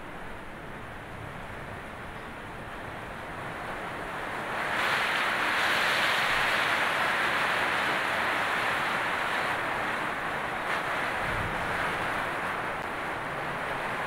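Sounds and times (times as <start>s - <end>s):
heavy rain splashing: 3.0s - 14.0s.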